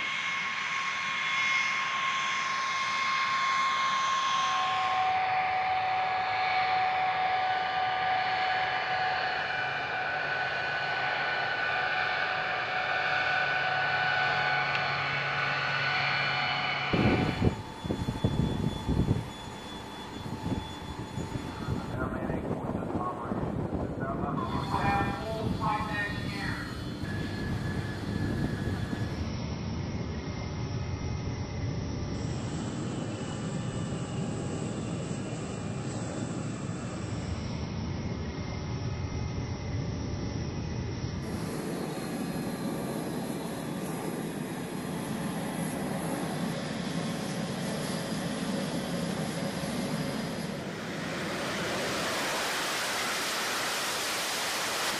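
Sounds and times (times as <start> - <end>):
jet engines whining: 0.0 - 54.9
low fluctuating rumble: 8.6 - 29.4.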